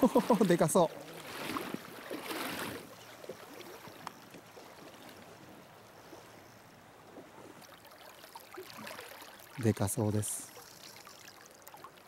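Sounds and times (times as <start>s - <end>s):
river flowing over stones: 0.0s - 5.9s
small ticks: 10.5s - 12.0s.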